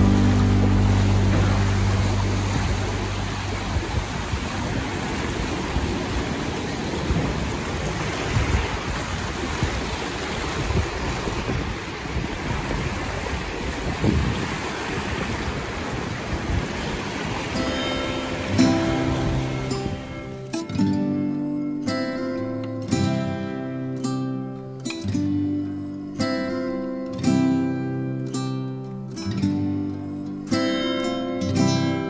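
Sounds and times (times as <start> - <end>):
wind buffeting microphone: 0.0 - 20.6
river water rushing: 0.0 - 32.0.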